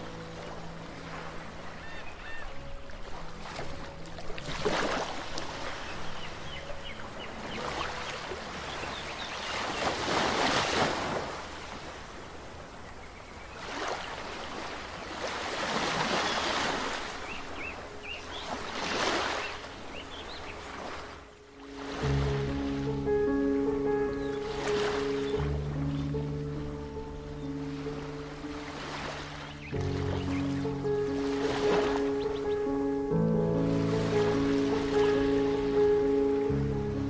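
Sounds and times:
sea waves washing onto shore: 2.5 - 12.7, 27.6 - 32.5.

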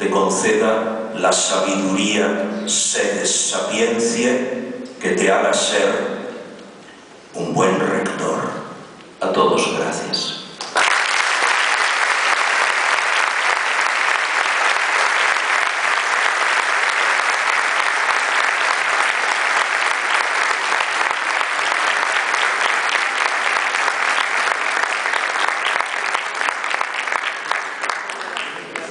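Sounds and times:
audience applauding: 10.6 - 28.9.

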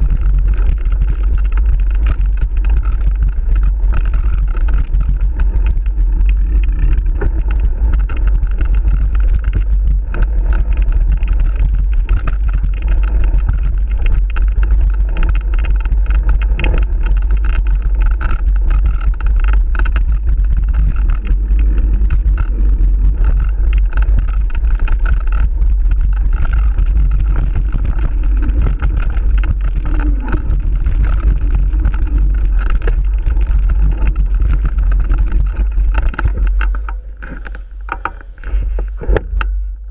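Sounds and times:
bike rattling over bumps: 0.0 - 39.9
wind buffeting microphone: 0.0 - 39.9.

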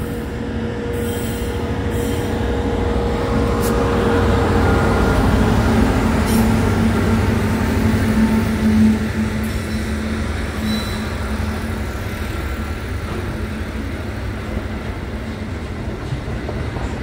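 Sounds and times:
train wheels on rails: 0.0 - 17.0.

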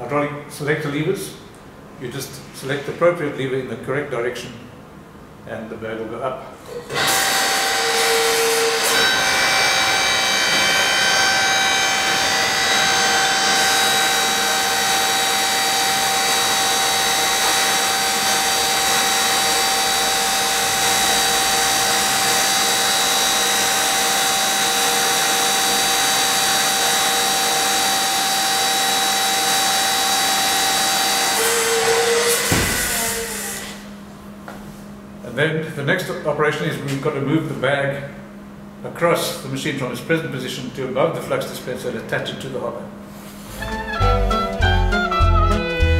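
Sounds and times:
hydraulic power unit whining: 6.7 - 34.1.

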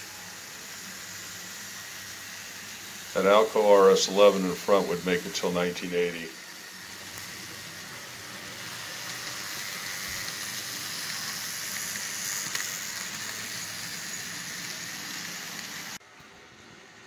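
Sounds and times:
model train rattling on track: 8.9 - 16.0.

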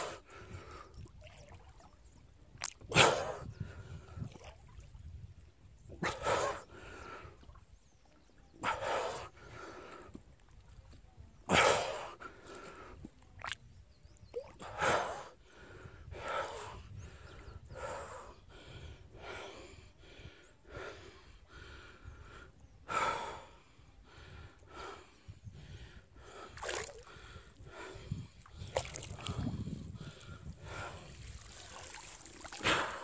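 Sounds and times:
person breathing hard: 14.6 - 31.8.

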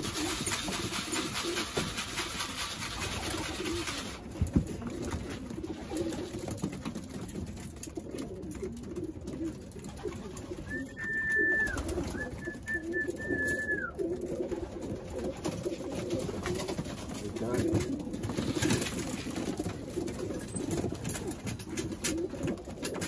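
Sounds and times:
beaks pecking grain: 0.0 - 23.0
pigeons cooing: 0.0 - 23.0
high whistle-like tones: 10.7 - 14.0.

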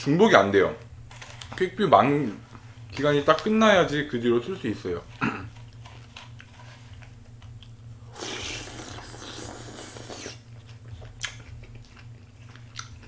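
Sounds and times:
low steady hum: 0.0 - 13.0
person slurping: 8.1 - 10.4.

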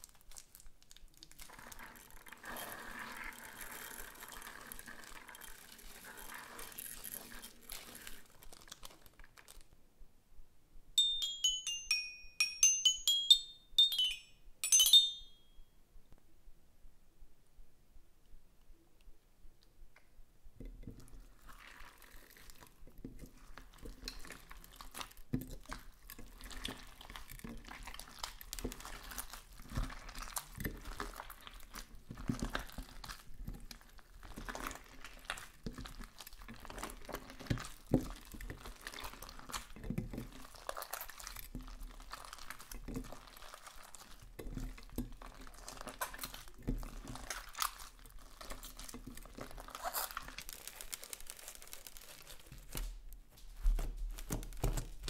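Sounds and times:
slime crackling and squishing: 0.0 - 9.7, 20.9 - 55.0.

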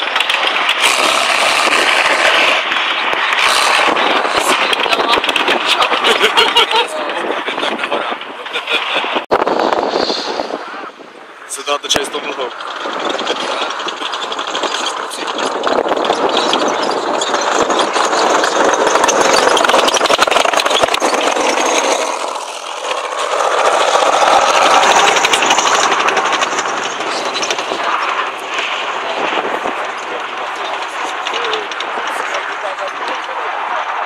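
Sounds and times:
tank diesel engine running: 0.0 - 10.6, 11.4 - 34.0
steel tracks clattering: 12.2 - 33.3.

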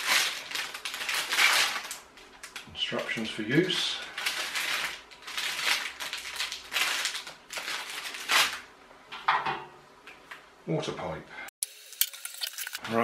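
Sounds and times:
plastic bag rustling: 0.0 - 8.7.

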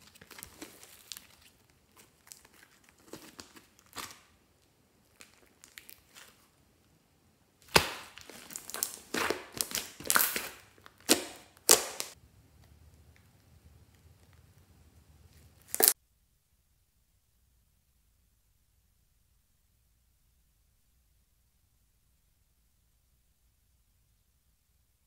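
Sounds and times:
slime crackling and tearing: 5.0 - 6.4, 7.6 - 12.2, 15.6 - 16.0
slime popping: 7.6 - 12.2, 15.6 - 16.0.

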